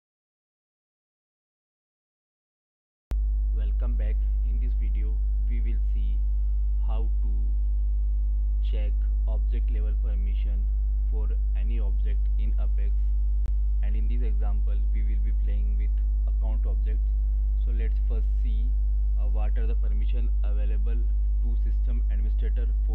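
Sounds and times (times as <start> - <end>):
electrical mains hum: 3.1 - 22.9
faint voice: 3.6 - 6.2, 6.8 - 7.5, 8.6 - 12.9, 13.8 - 17.0, 17.6 - 22.9.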